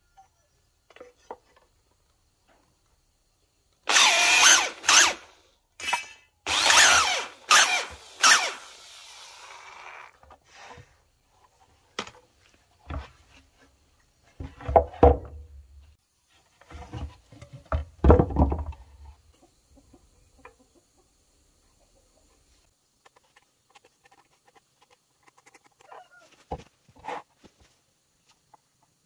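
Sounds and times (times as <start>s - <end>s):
wooden plank knocking on ground: 14.4s - 15.5s, 17.7s - 18.8s
chicken clucking: 19.3s - 24.0s.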